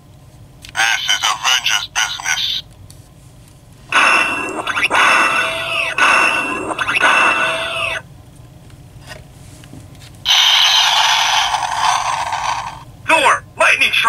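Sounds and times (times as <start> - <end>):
hissing crackling blast effect: 3.9 - 8.0, 10.3 - 12.8
warbling sweeping toy sound effect: 3.9 - 8.0, 10.3 - 12.8.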